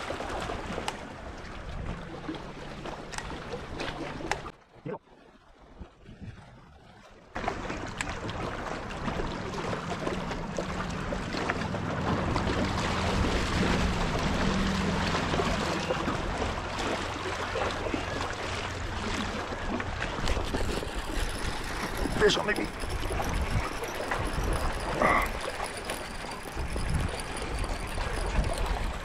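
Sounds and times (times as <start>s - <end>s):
water lapping against rocks: 0.0s - 29.0s
wind buffeting microphone: 5.8s - 7.0s, 18.7s - 29.0s.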